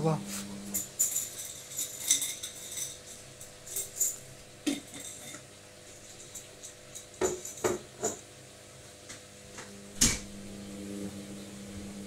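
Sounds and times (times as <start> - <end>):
washing machine hum: 0.0 - 12.0
drum metallic clinks and rattles: 0.8 - 5.4.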